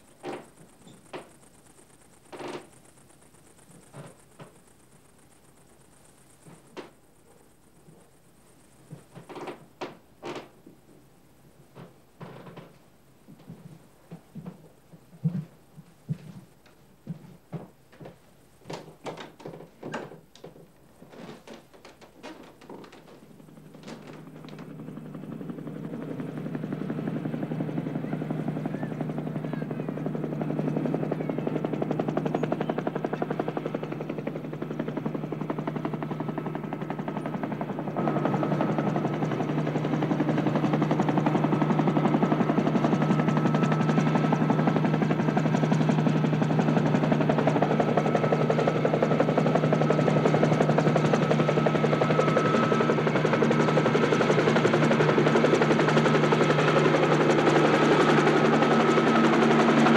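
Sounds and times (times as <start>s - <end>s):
chopping machine drone: 22.8s - 59.9s.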